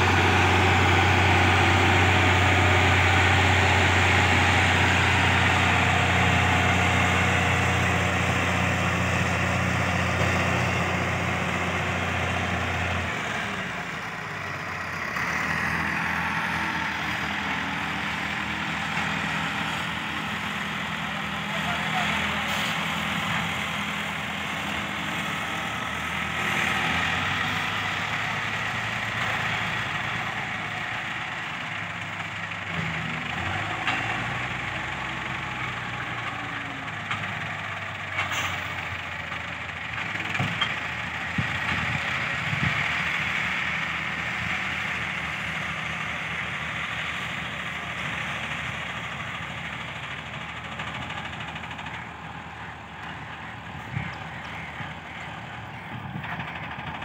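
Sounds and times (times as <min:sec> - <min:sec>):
diesel engines under load: 0:00.0 - 0:57.0.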